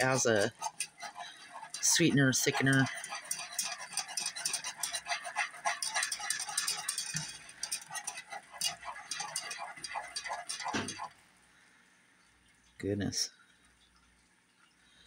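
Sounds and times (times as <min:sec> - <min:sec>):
whisk scraping a saucepan: 0:00.0 - 0:11.2
syrup bubbling: 0:00.0 - 0:15.0.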